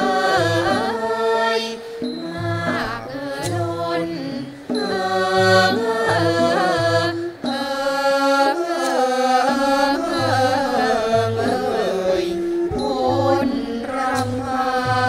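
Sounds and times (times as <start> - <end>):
male chorus singing in unison: 0.0 - 15.0
low drum beats: 8.8 - 15.0.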